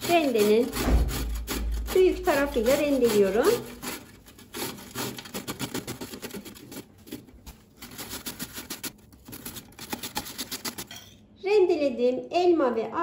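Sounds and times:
fruit grated on box grater: 0:00.0 - 0:10.9.

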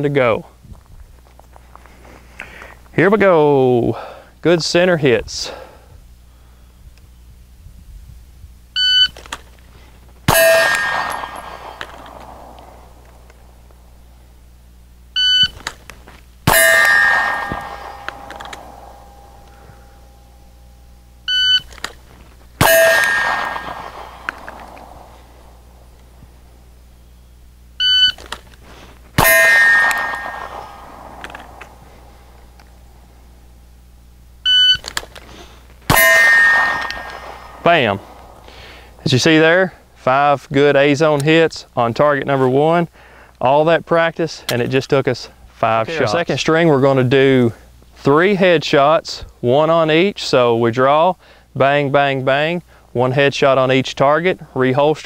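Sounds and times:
pistol shot: 0:10.3 - 0:13.6, 0:16.5 - 0:20.0, 0:22.6 - 0:25.7, 0:29.2 - 0:32.5, 0:35.9 - 0:38.5
bullet ringing steel target: 0:10.3 - 0:14.1, 0:16.5 - 0:21.3, 0:22.6 - 0:26.7, 0:29.2 - 0:33.6, 0:35.9 - 0:39.3
shot timer beep: 0:15.2 - 0:15.6, 0:16.5 - 0:21.7, 0:22.6 - 0:25.1, 0:29.2 - 0:30.9, 0:35.9 - 0:37.9.

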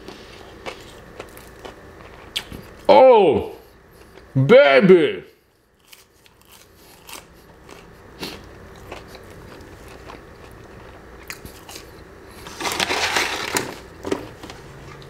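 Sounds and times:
person chewing: 0:00.0 - 0:02.9, 0:05.6 - 0:12.1
paper carton rustling: 0:12.4 - 0:13.8.

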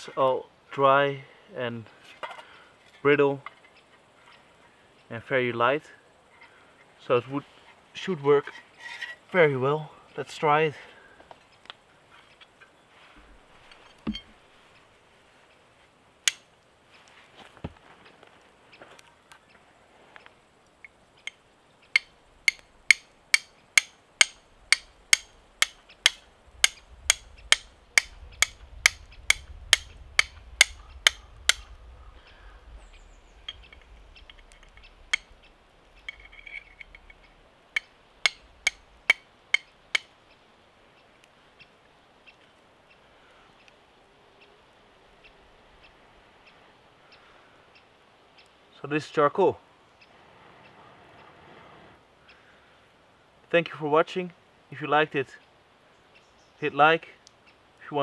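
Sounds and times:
flint and steel striking: 0:13.6 - 0:14.4, 0:16.2 - 0:16.6, 0:20.8 - 0:31.7, 0:33.4 - 0:40.2.

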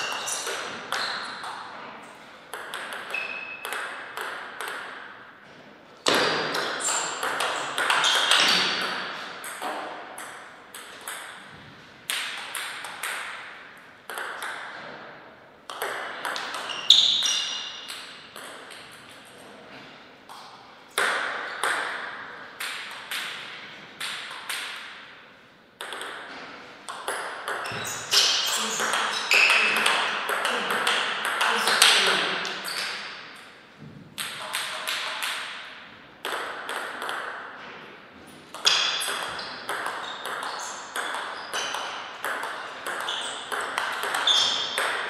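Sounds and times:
ball bouncing on table: 0:02.5 - 0:05.0, 0:06.0 - 0:13.5, 0:14.1 - 0:15.1, 0:15.7 - 0:19.1, 0:25.8 - 0:33.0, 0:33.8 - 0:35.6, 0:36.2 - 0:37.9, 0:38.5 - 0:45.0.

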